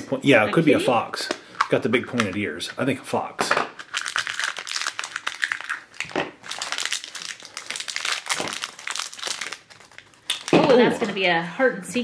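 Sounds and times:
plastic wrapper crinkling: 0:01.2 - 0:02.6, 0:03.7 - 0:11.0.

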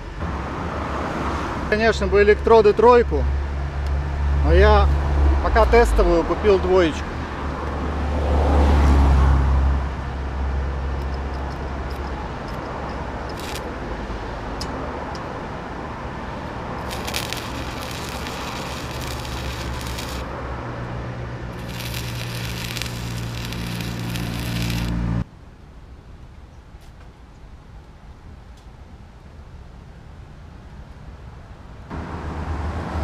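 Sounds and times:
passing vehicle rumble: 0:00.1 - 0:25.3, 0:31.9 - 0:33.0
welding arc crackling and sizzling: 0:13.2 - 0:13.8, 0:16.8 - 0:20.3, 0:21.5 - 0:25.2.

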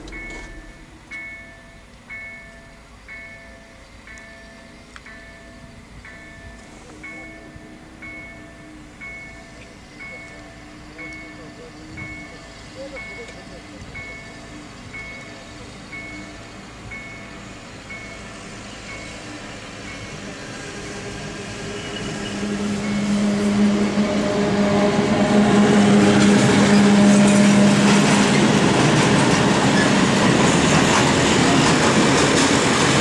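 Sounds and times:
train wagons rolling and clattering: 0:00.0 - 0:01.6, 0:09.1 - 0:33.0
electric locomotive hum: 0:00.0 - 0:33.0.

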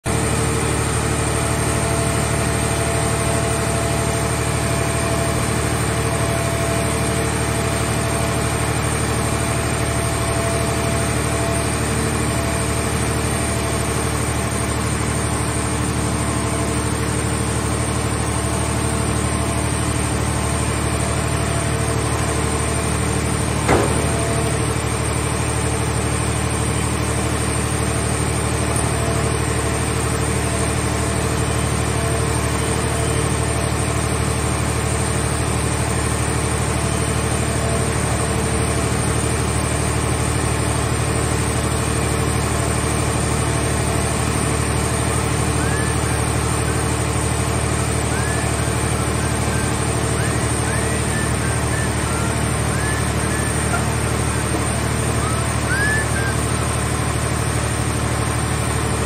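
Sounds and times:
hydraulic baler droning: 0:00.1 - 0:59.0
sharp knock: 0:23.7 - 0:24.5.

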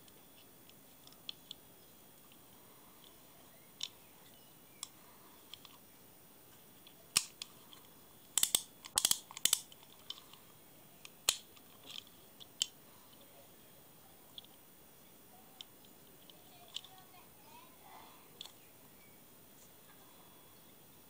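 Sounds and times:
fishing reel clicks and knocks: 0:08.4 - 0:10.2.

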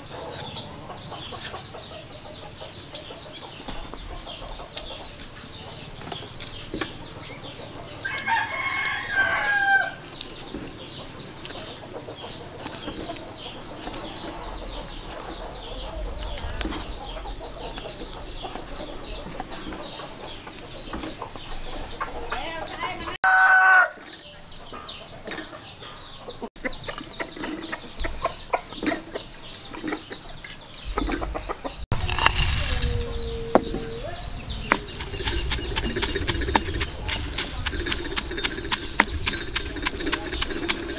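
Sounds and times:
chickens clucking: 0:00.0 - 0:40.9
knife chopping on wooden board: 0:34.7 - 0:40.9.

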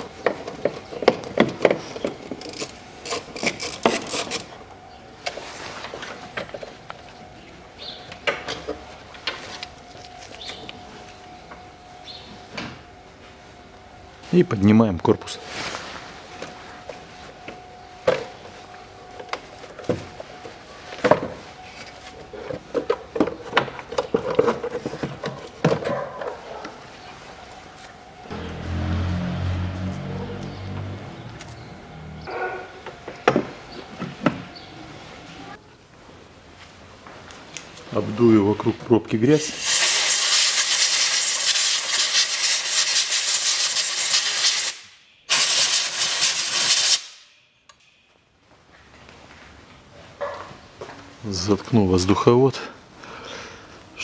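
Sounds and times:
air blow gun hissing: 0:39.3 - 0:47.2.

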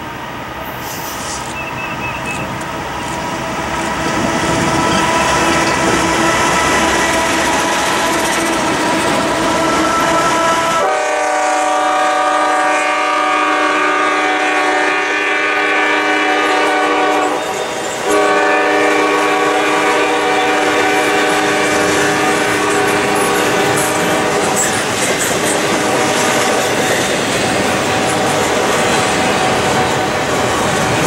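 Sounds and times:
train wheels clicking over rail joints: 0:00.0 - 0:10.7, 0:20.2 - 0:31.0
locomotive air horn blast: 0:09.5 - 0:24.6.

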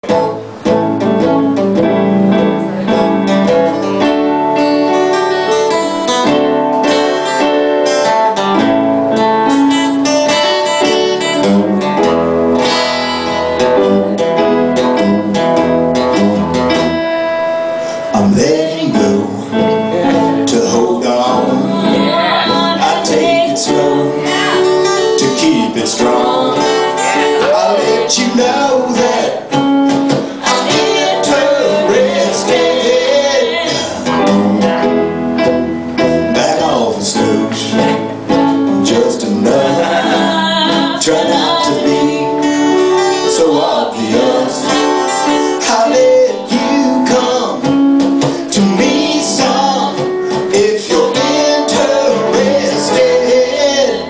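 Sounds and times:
acoustic guitar strummed and plucked: 0:00.0 - 0:54.0
person singing: 0:18.0 - 0:29.6, 0:30.3 - 0:34.8, 0:36.0 - 0:38.1, 0:38.8 - 0:54.0.

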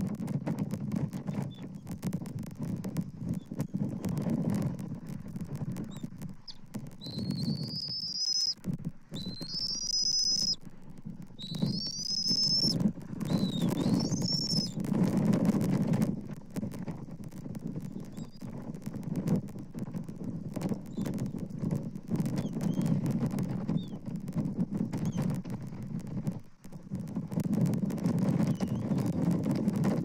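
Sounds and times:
low rumbling noise: 0:00.0 - 0:30.0
scattered clicks: 0:00.0 - 0:30.0
eaglet whistled begging calls: 0:05.8 - 0:10.7, 0:11.3 - 0:14.8, 0:17.9 - 0:18.5, 0:20.9 - 0:21.4, 0:22.2 - 0:23.0, 0:23.7 - 0:24.0, 0:28.4 - 0:29.2.

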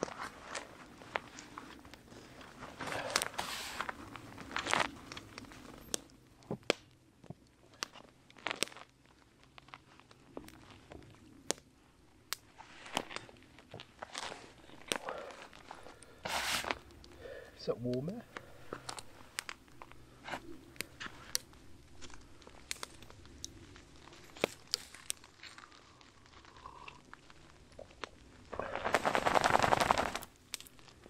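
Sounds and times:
fabric rustling: 0:12.5 - 0:16.9, 0:28.6 - 0:31.0.

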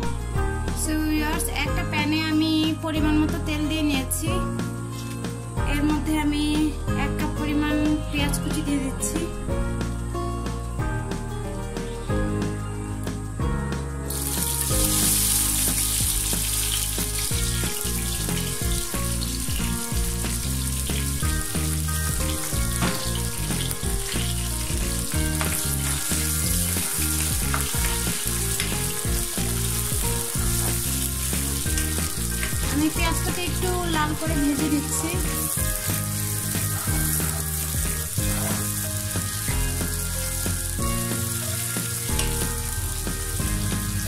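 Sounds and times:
background music: 0:00.0 - 0:44.0
onions sizzling in hot oil: 0:14.1 - 0:44.0.

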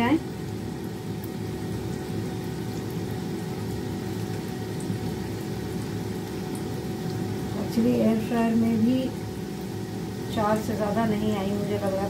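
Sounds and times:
food sizzling and bubbling in oil: 0:00.0 - 0:12.0
steady hum: 0:00.0 - 0:12.0.

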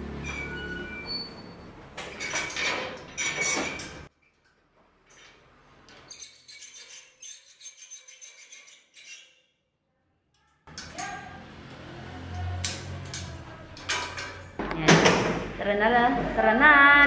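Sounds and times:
metal gate bolt clanking: 0:10.7 - 0:11.3.

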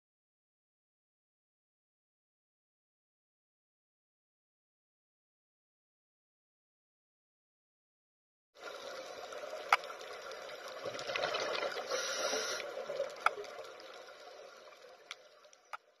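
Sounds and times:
water noise: 0:08.6 - 0:16.0.

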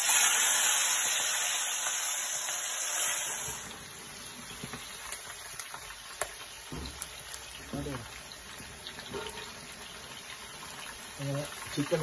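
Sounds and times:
chicken frying in hot oil: 0:00.0 - 0:12.0.

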